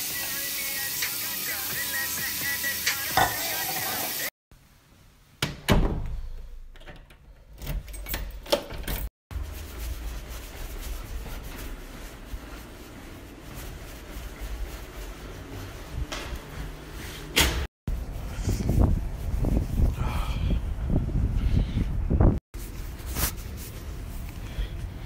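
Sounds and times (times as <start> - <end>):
door thudding shut: 5.4 - 6.2.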